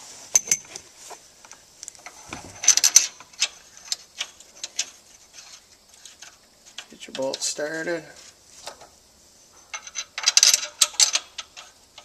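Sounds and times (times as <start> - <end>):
metal clicks and clinks: 1.8 - 7.5, 9.7 - 12.0.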